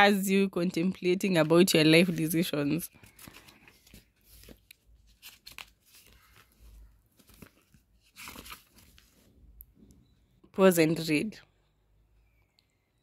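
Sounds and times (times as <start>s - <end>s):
book pages rustling: 1.4s - 9.4s.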